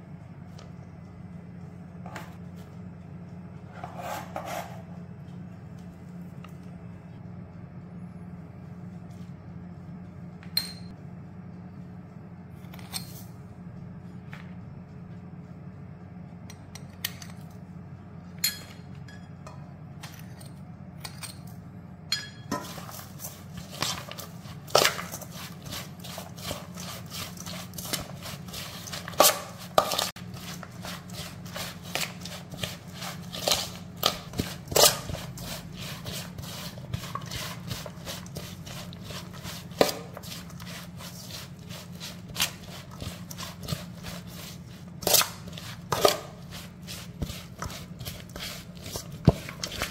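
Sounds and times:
steady low hum: 0.0s - 49.9s
spoon clinking in metal bowl: 10.6s - 10.9s, 22.1s - 22.9s.

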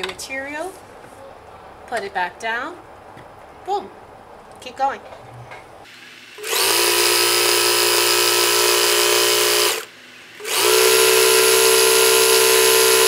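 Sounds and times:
electric sewing machine running: 5.9s - 13.0s.

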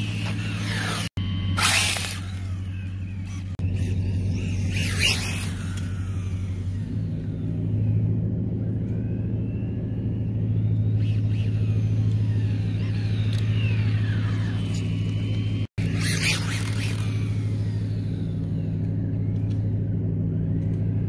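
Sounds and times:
electric rc car motor whining: 0.0s - 8.0s, 10.2s - 19.7s
steady low hum: 0.0s - 21.0s.

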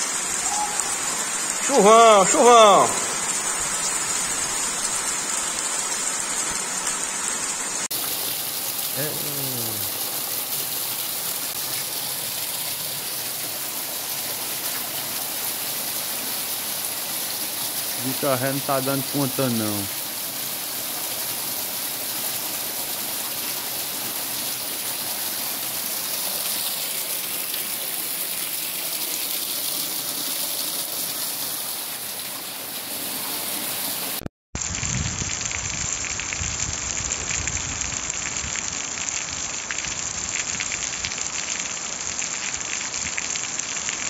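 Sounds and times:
water gushing off roof: 0.0s - 34.2s
heavy rain: 0.0s - 44.0s.

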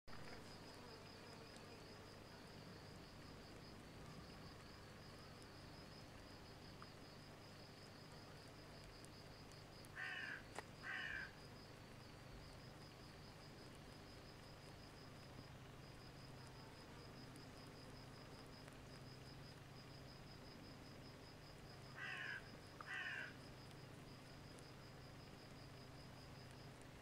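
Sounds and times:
insect trilling: 9.8s - 11.5s, 21.7s - 23.6s.

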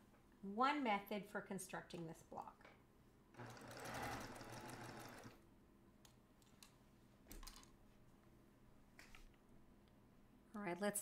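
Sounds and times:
sewing machine stitching: 3.4s - 5.4s.

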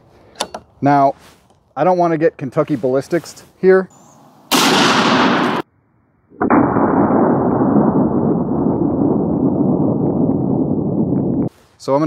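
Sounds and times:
loud rifle blast: 4.2s - 5.7s, 6.4s - 10.9s.

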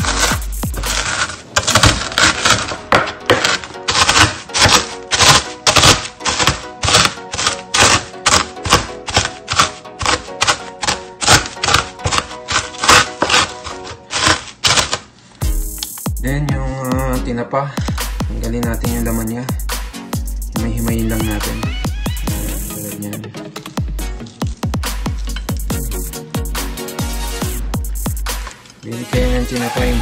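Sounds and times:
rolling pin crushing pork rinds: 0.0s - 15.2s
background music: 0.0s - 30.0s.

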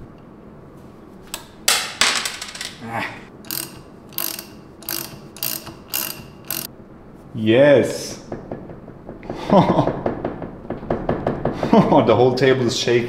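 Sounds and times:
robot arm joint rasping: 3.3s - 6.7s.

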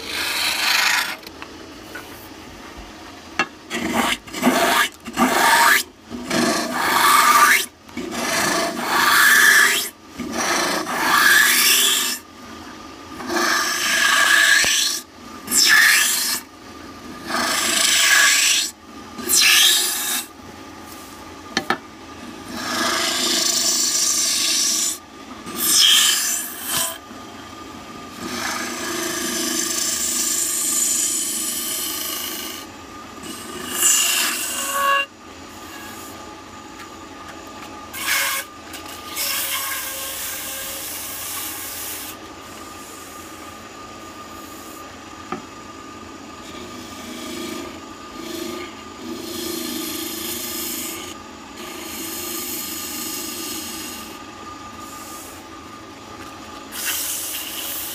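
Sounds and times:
gouge scraping wood: 0.0s - 1.3s
wood lathe humming: 0.0s - 1.4s, 3.7s - 12.2s, 13.2s - 16.4s, 17.3s - 20.2s, 22.4s - 27.0s, 28.1s - 36.4s, 46.4s - 57.9s.

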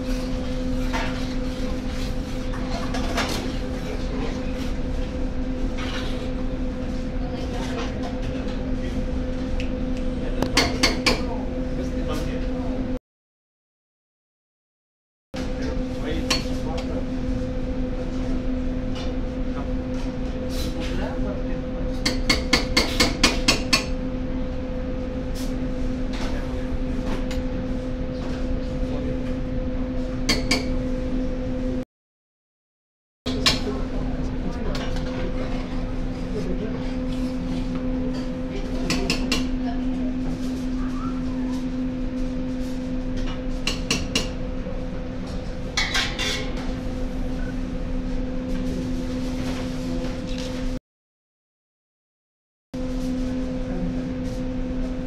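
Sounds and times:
electrical hum: 15.4s - 31.8s, 33.3s - 50.8s.

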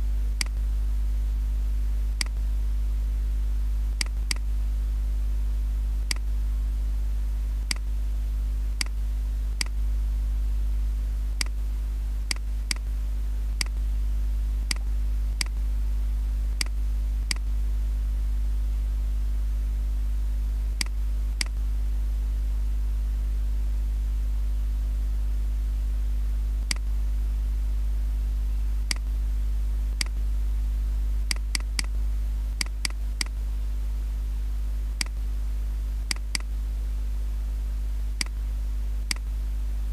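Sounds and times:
low electrical hum: 0.0s - 39.9s
mouse buttons clicking: 31.3s - 31.9s, 36.1s - 36.5s.

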